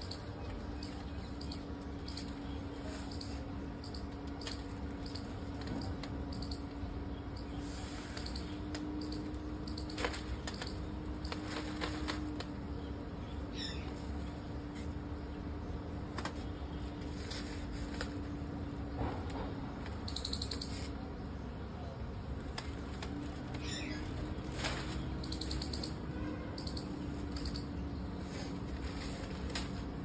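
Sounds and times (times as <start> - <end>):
kite sails rustling and crackling: 28.2 - 30.0.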